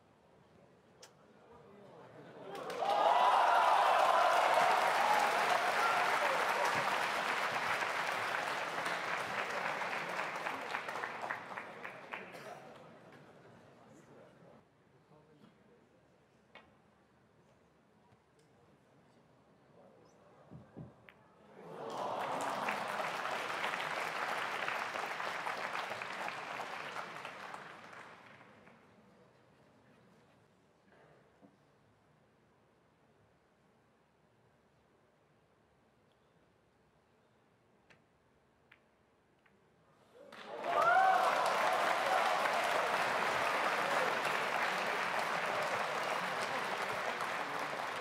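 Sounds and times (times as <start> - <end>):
audience applauding: 2.5 - 12.5, 21.6 - 28.6, 40.3 - 48.0.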